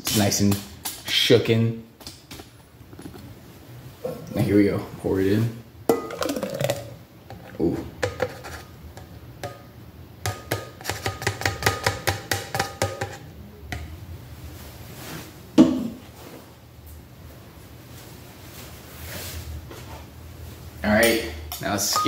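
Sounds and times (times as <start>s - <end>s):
plastic cup tapping metal tumbler: 10.2s - 13.9s.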